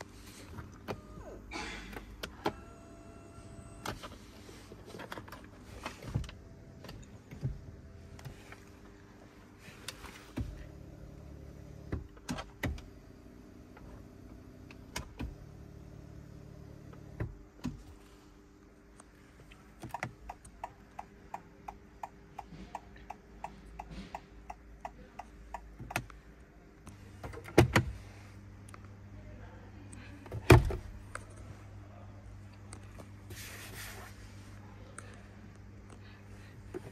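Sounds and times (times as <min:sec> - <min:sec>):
hazard lights ticking: 0:19.8 - 0:26.2.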